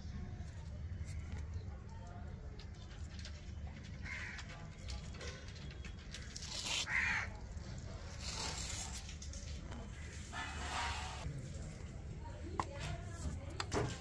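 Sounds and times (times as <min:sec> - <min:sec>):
crow cawing: 0:04.0 - 0:04.4, 0:06.9 - 0:07.3.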